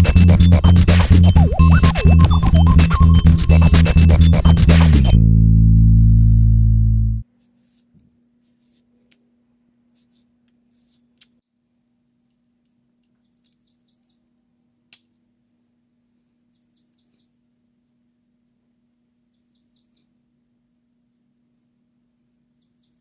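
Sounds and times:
abrasive paper rubbing on steel: 0:05.7 - 0:06.1, 0:07.4 - 0:09.1, 0:09.9 - 0:11.2
songbird trilling: 0:13.2 - 0:14.2, 0:16.5 - 0:17.3, 0:19.3 - 0:20.1, 0:22.6 - 0:23.0.

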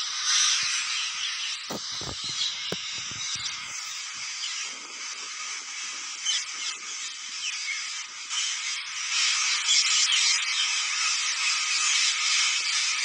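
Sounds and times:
parakeet flock screeching: 0:00.2 - 0:04.6.

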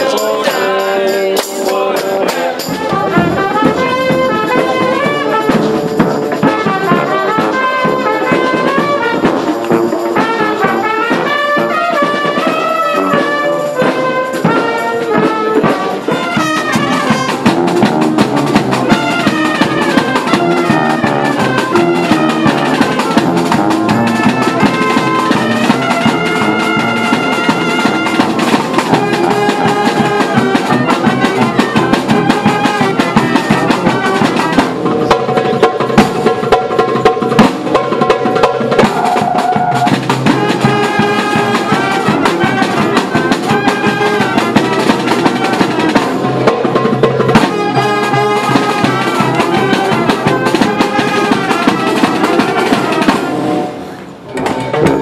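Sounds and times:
snare drum: 0:00.0 - 0:55.0
trumpets: 0:00.0 - 0:55.0.

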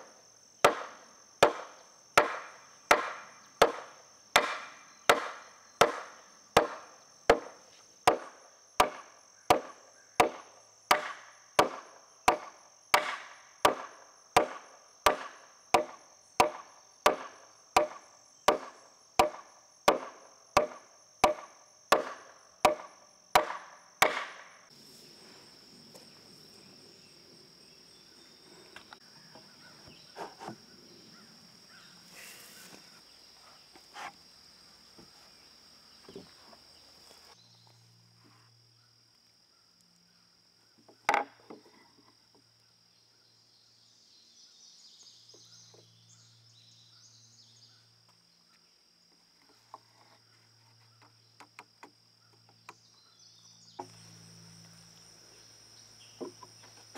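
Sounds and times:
insects buzzing: 0:00.0 - 0:56.9
wood being struck: 0:00.6 - 0:24.5.

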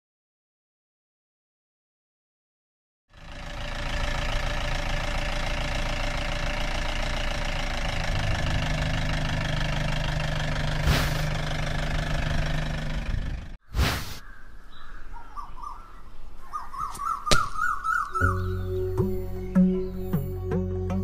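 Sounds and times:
jeep engine running: 0:03.1 - 0:13.6.

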